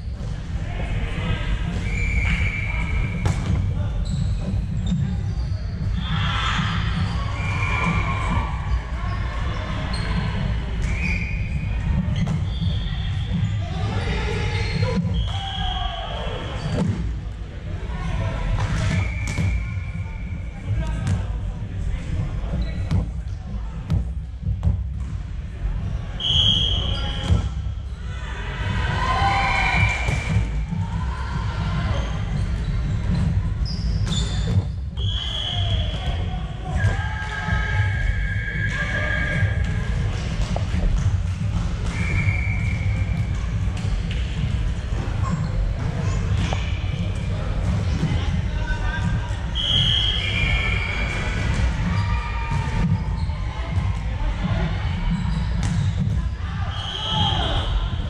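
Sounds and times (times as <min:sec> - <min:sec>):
low rumble in hall: 0:00.0 - 0:33.6
shoe squeaks on wooden floor: 0:04.0 - 0:05.9, 0:11.0 - 0:15.5, 0:32.0 - 0:35.8.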